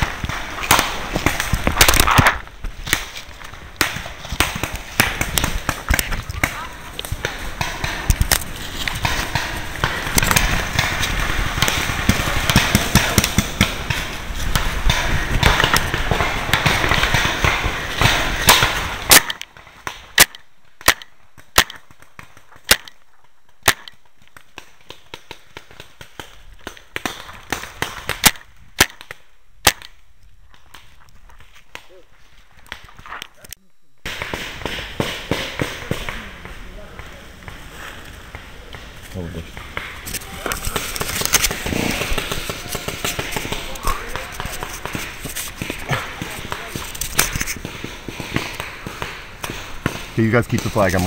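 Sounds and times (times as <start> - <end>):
rustling through brush: 0.0 - 16.1, 36.3 - 50.2
paintball marker shots: 0.0 - 23.0, 23.6 - 30.0, 38.3 - 51.0.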